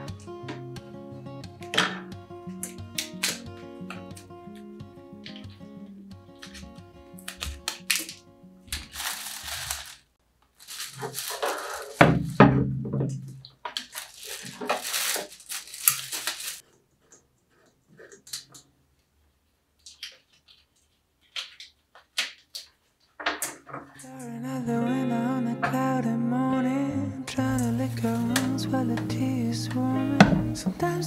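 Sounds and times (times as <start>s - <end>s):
soft music: 0.0s - 9.5s, 24.0s - 31.0s
plastic packaging crinkling: 6.4s - 12.4s, 13.5s - 16.6s.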